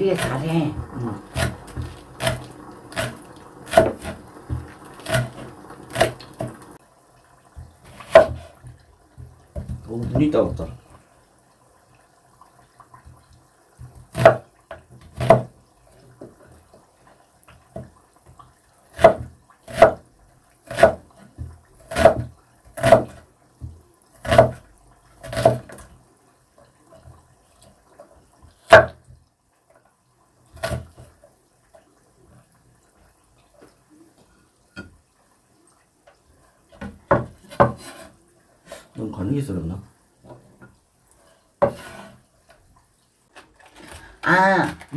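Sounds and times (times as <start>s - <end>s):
knife chopping on wooden board: 1.0s - 6.6s, 7.9s - 8.6s, 14.1s - 14.5s, 15.1s - 15.5s, 18.9s - 20.0s, 20.7s - 24.6s, 25.2s - 25.8s, 28.7s - 29.0s.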